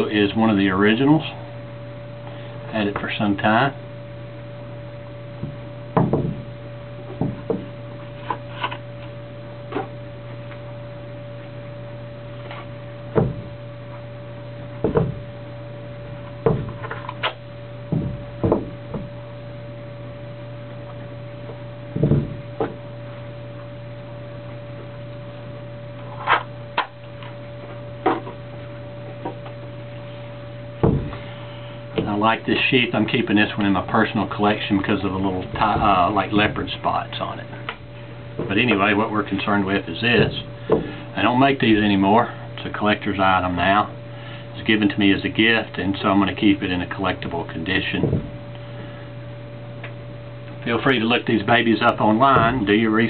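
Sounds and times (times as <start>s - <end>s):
electrical hum: 0.0s - 53.0s.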